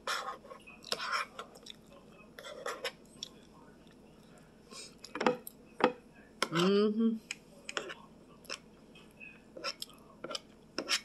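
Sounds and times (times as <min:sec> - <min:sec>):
chewing: 0:00.8 - 0:02.0
spoon scraping a plate: 0:02.4 - 0:03.0, 0:07.7 - 0:08.6, 0:09.6 - 0:11.0.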